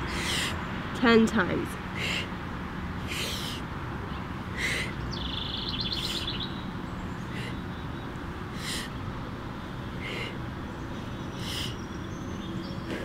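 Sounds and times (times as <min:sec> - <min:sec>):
woman breathing sharply: 0:00.0 - 0:00.6, 0:02.0 - 0:02.4, 0:04.5 - 0:05.0, 0:07.3 - 0:07.6, 0:08.6 - 0:09.0, 0:10.0 - 0:10.4, 0:11.4 - 0:11.8
low outdoor rumble: 0:00.0 - 0:13.0
songbird trill: 0:03.2 - 0:13.0.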